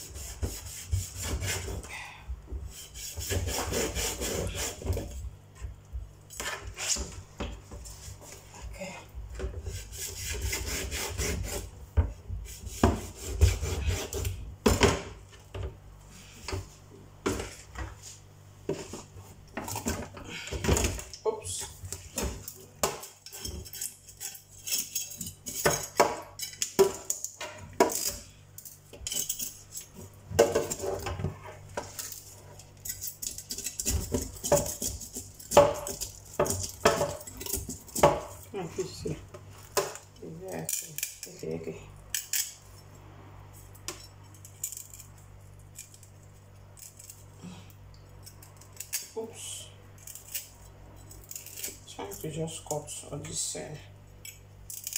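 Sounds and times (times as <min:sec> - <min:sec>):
knife scraping fish scales: 0:00.0 - 0:02.0, 0:02.7 - 0:05.1, 0:09.6 - 0:11.7, 0:12.4 - 0:14.4, 0:21.9 - 0:30.0, 0:30.6 - 0:38.5.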